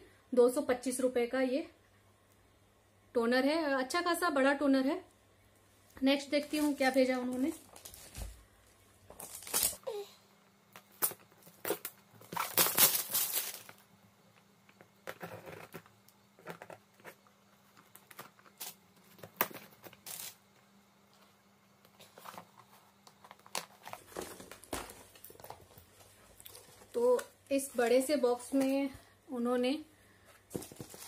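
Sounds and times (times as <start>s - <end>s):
packaging rustles: 6.4s - 8.4s, 9.0s - 9.8s, 10.8s - 13.9s, 22.0s - 28.0s, 30.4s - 31.0s
cardboard box tearing and crinkling: 11.6s - 13.7s.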